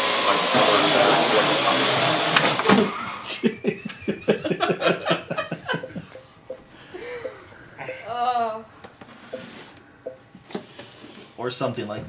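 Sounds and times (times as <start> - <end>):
drone rotors whirring: 0.0 - 3.3
person laughing: 3.2 - 6.3.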